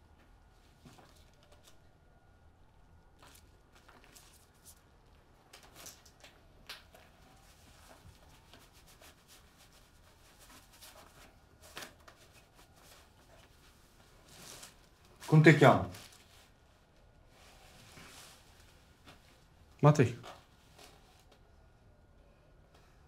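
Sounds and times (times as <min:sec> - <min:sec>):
faint rustles: 0:03.0 - 0:21.5.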